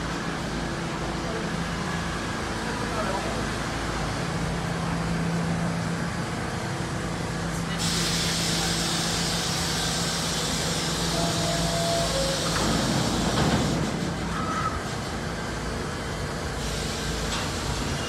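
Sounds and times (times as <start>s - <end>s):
low hum of train cars: 0.0s - 18.0s
loud hiss: 7.8s - 15.0s.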